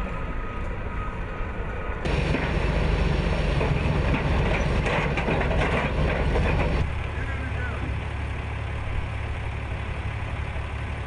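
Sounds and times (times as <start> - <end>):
diesel engine rumbling: 0.0 - 11.0
tracks clattering: 2.1 - 8.2.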